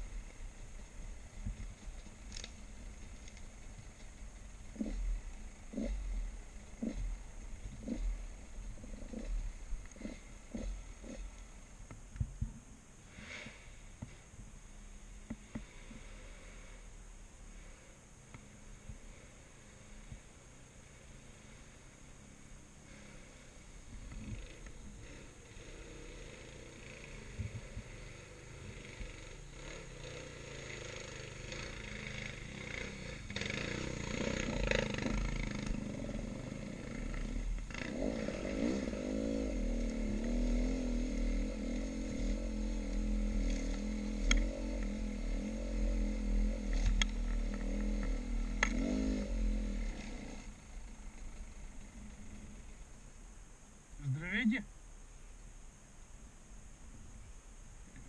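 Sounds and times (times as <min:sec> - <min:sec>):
dirt bike engine revving: 0:04.6 - 0:11.4, 0:18.4 - 0:52.9.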